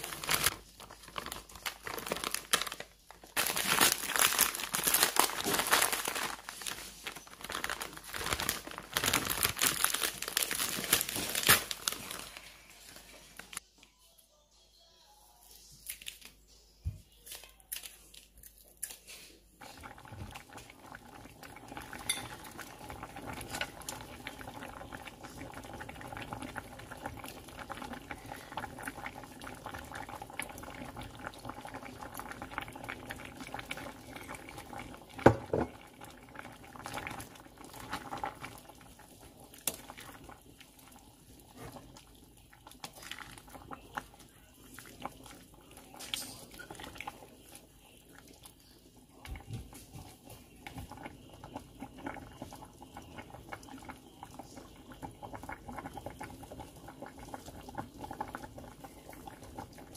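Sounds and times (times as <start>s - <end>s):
soup bubbling in a pot: 0.0s - 13.6s, 19.6s - 59.9s
spoon clinking against pot: 22.0s - 22.4s.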